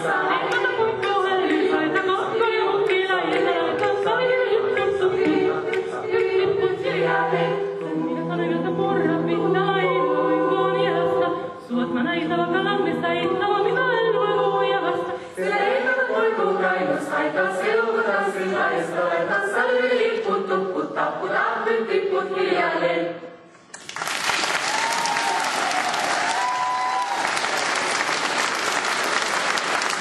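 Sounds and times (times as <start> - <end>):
mixed choir singing a cappella: 0.0 - 23.6.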